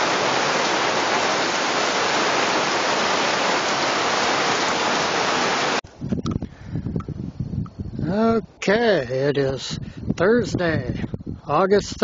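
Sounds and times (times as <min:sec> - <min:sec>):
heavy rain pouring: 0:00.0 - 0:05.8.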